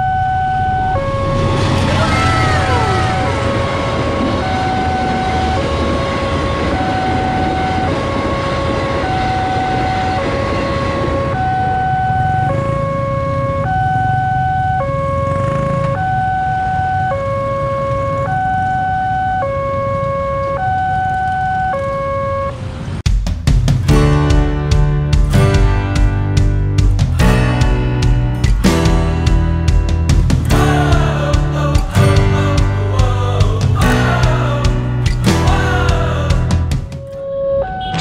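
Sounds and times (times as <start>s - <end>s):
level crossing warning alarm: 0.0s - 22.8s, 36.9s - 38.0s
train passing at speed: 0.5s - 12.6s.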